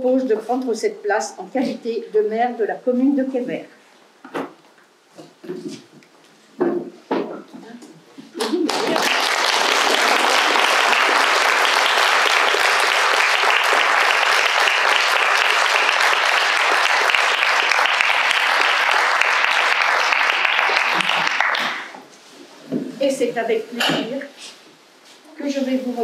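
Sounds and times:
small group applauding: 8.4s - 22.0s.

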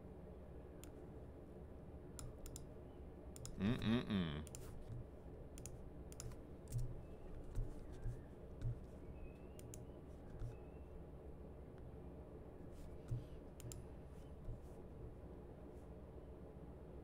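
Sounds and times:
mouse and keyboard clicks: 5.6s - 8.8s.

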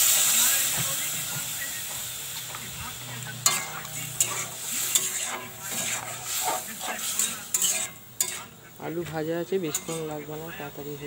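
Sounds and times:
gravy bubbling and sizzling: 0.0s - 11.0s
metal spatula scraping pot: 3.1s - 10.4s.

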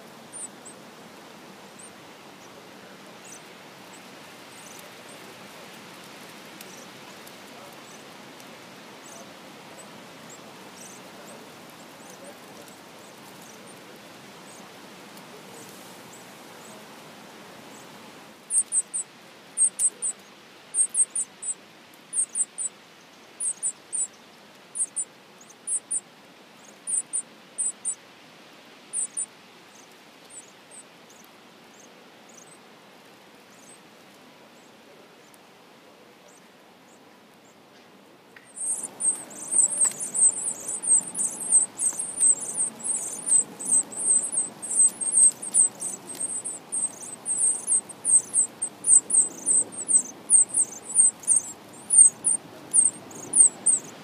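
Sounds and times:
nestlings chirping: 0.3s - 0.8s, 3.2s - 5.3s, 6.6s - 6.9s, 9.0s - 13.8s, 18.5s - 22.7s, 23.4s - 26.0s, 26.6s - 28.0s, 28.9s - 32.6s, 38.5s - 54.0s.

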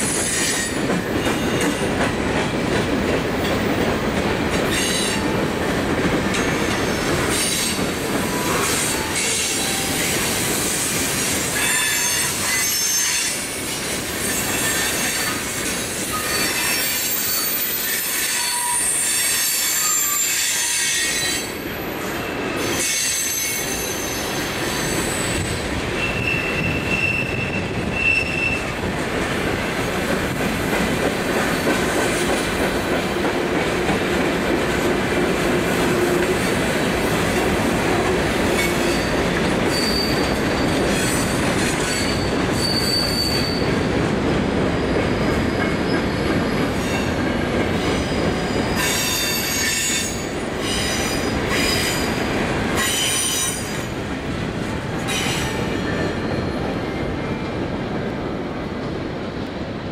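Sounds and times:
train wheels rumbling on rail: 0.0s - 59.9s
high-pitched wheel squeals: 16.1s - 21.5s, 22.4s - 28.6s, 39.7s - 43.7s.

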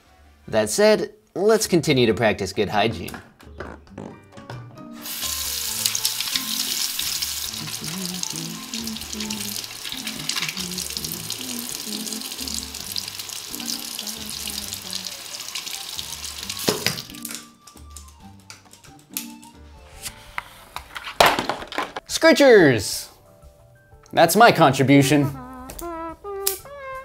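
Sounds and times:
background music: 0.0s - 27.0s
tap water splashing into basin: 15.6s - 17.4s.

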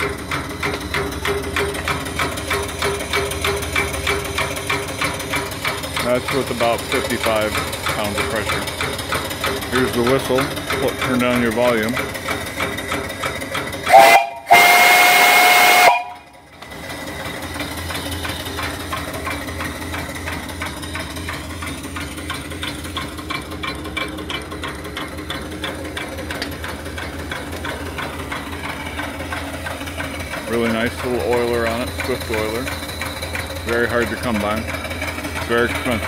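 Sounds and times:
steam engine knocking: 0.0s - 36.0s
steam whistle blowing: 13.8s - 16.4s.

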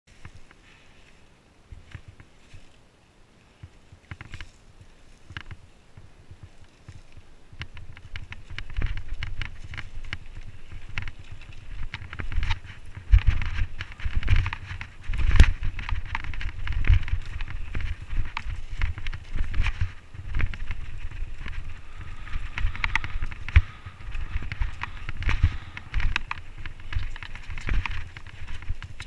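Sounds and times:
bike tyres rolling over dirt: 0.1s - 29.0s
wind rumble on microphone: 3.5s - 29.0s
bike rattling over bumps: 6.3s - 29.0s.

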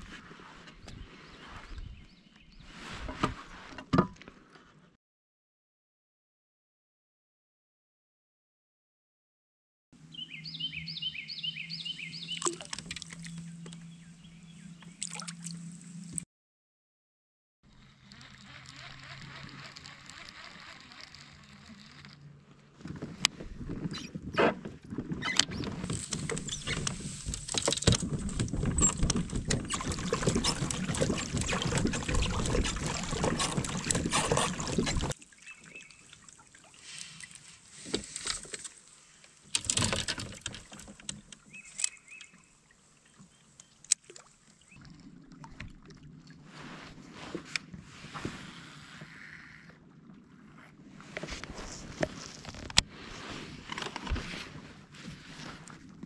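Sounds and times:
water splashing against kayak hull: 12.1s - 13.5s, 24.6s - 49.1s
gear knocking and rattling: 25.8s - 35.2s.

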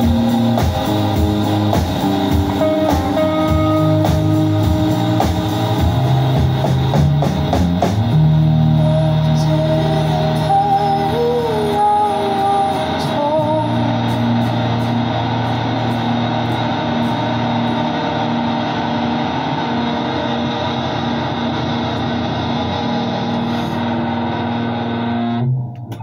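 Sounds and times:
live rock band playing: 0.0s - 9.0s.

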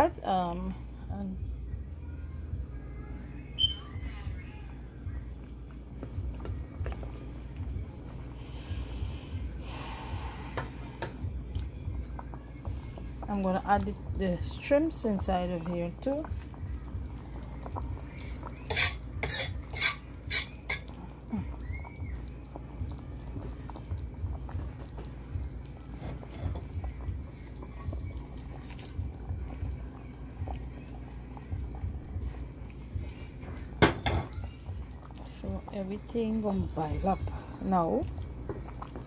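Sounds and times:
low steady rumble: 0.0s - 19.2s, 20.9s - 33.8s
utensil scraping against pans: 18.7s - 20.8s.

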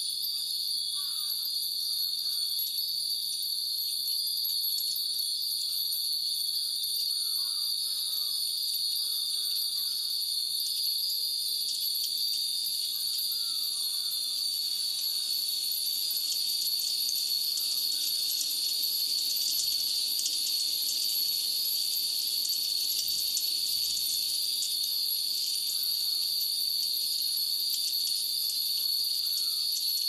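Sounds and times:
high-pitched insect drone: 0.0s - 30.0s
wind bells tinkling: 0.0s - 30.0s.

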